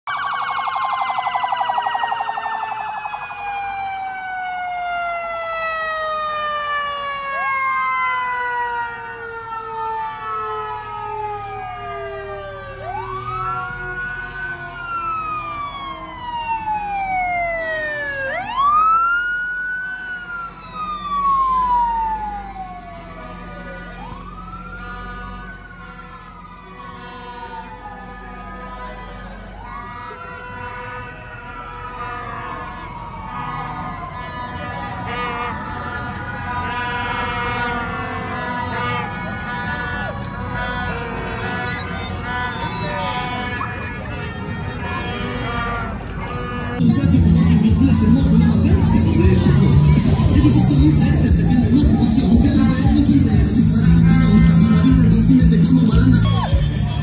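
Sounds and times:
police siren yelping and wailing: 0:00.0 - 0:57.0.

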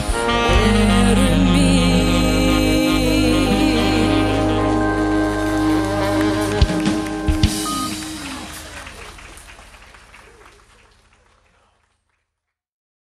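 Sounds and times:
jazz band final chord: 0:00.0 - 0:09.3
audience applause: 0:05.0 - 0:12.4.

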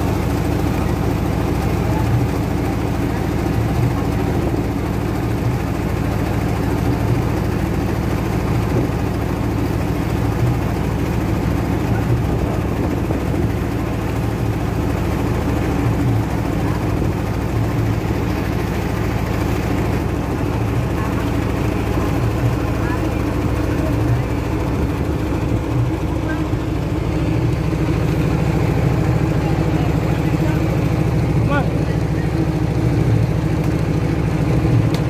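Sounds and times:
boat diesel engine running: 0:00.0 - 0:35.0
water rushing in wake: 0:00.0 - 0:35.0.

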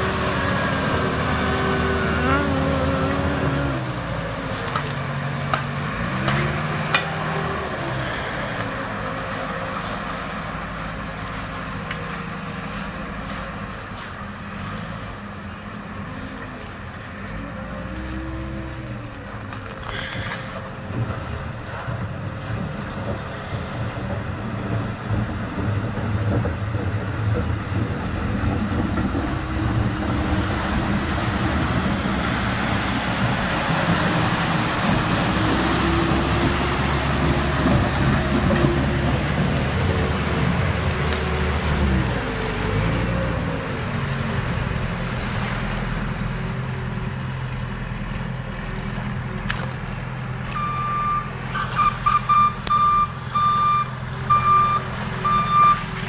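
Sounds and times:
water rushing: 0:00.0 - 0:13.8, 0:14.5 - 0:49.2, 0:50.1 - 0:56.0
tractor engine under load: 0:00.0 - 0:56.0
reversing beeper: 0:50.6 - 0:55.9.

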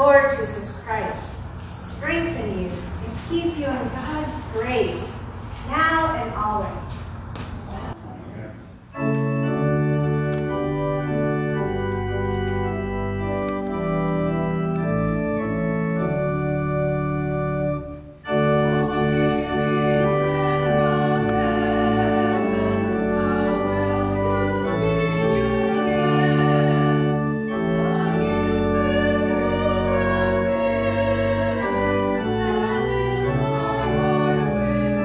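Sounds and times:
organ playing held chords: 0:08.8 - 0:35.0.

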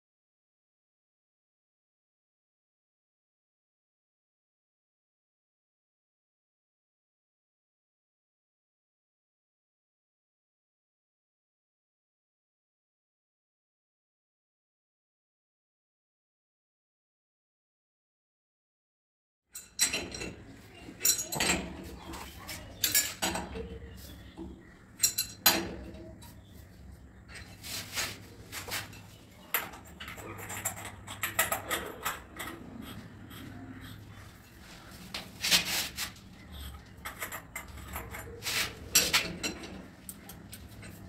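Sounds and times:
wrench clinking on metal fittings: 0:21.0 - 0:23.8, 0:25.0 - 0:25.8.

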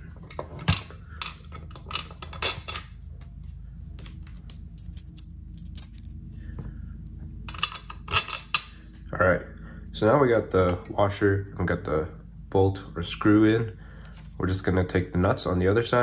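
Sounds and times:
steel hardware clinking: 0:04.8 - 0:06.2.

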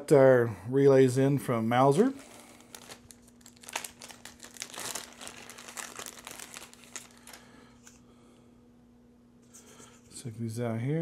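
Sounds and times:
plastic bag crinkling: 0:01.9 - 0:08.0.

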